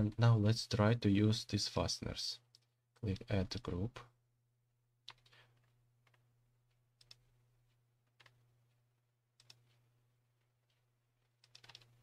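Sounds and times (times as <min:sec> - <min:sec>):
computer mouse clicks: 0:05.1 - 0:06.2, 0:07.0 - 0:07.2, 0:09.4 - 0:09.8, 0:11.4 - 0:12.0.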